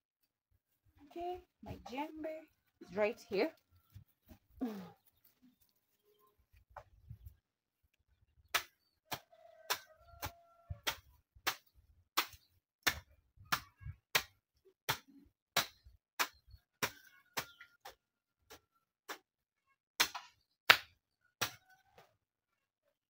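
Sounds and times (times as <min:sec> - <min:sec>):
hand hoe chopping into soil: 0:08.5 - 0:19.2.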